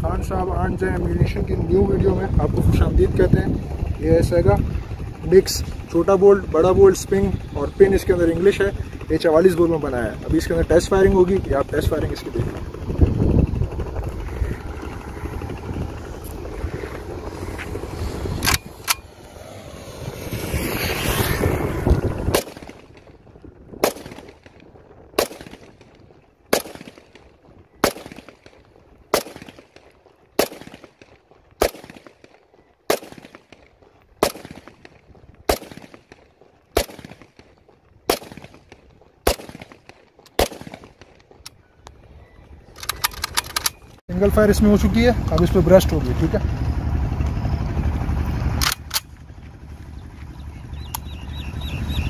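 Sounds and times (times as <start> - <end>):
rumbling noise: 0.0 - 31.6, 33.4 - 52.0
rifle shots with echo: 22.3 - 23.1, 23.8 - 41.3.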